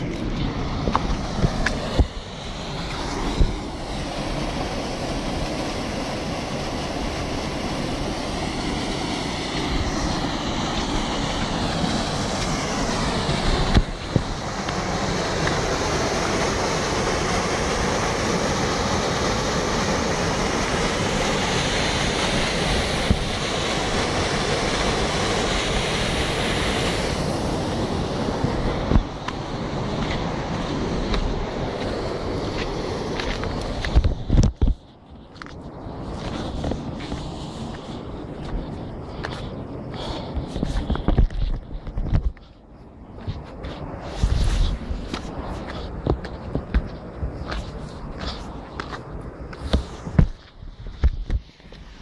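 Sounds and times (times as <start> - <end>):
wind on microphone: 0.0 - 52.0
waterfall pouring over rocks: 1.0 - 34.0.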